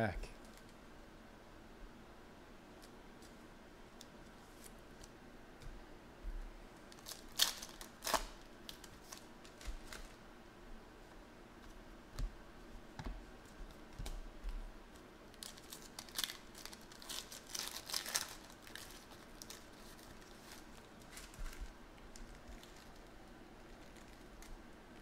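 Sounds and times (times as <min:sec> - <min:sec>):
plastic wrapper crinkling and tearing: 0:06.9 - 0:10.2, 0:15.3 - 0:25.0.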